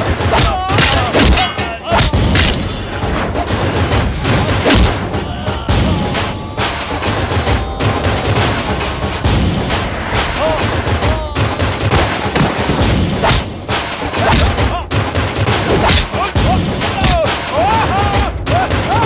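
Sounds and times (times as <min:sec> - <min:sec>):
fight hits and impacts: 0:00.0 - 0:05.2, 0:08.5 - 0:17.6.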